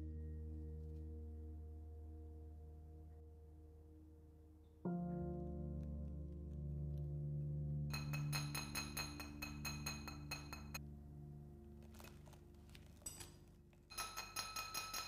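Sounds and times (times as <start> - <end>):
soft background music: 0.0 - 15.0
small hammer tapping clinks: 13.1 - 15.0.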